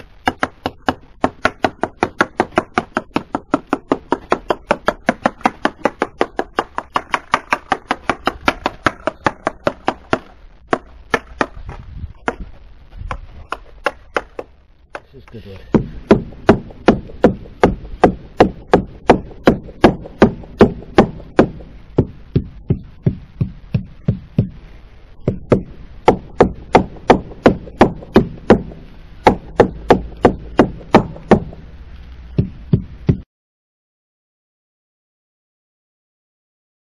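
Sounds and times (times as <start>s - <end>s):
wooden mallet tapping wooden hull: 0.2s - 12.5s, 13.1s - 15.1s, 15.7s - 24.6s, 25.2s - 31.6s.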